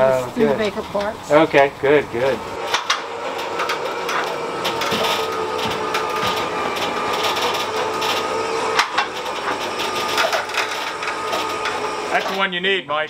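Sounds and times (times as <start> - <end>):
electric winch running: 0.0 - 12.8
creaks and clicks from car and cable: 2.6 - 12.4.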